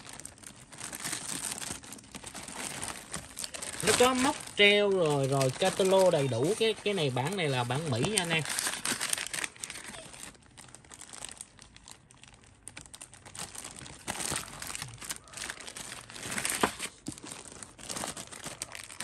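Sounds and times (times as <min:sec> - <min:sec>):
plastic bags crinkling: 0:00.0 - 0:19.0.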